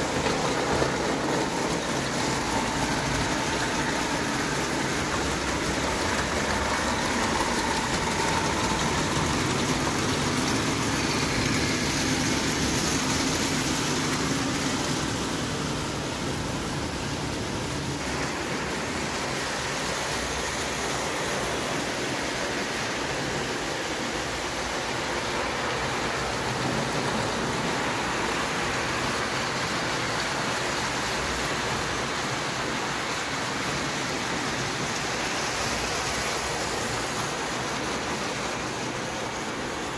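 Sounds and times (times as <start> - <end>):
model trains rumbling on track: 0.0 - 39.9.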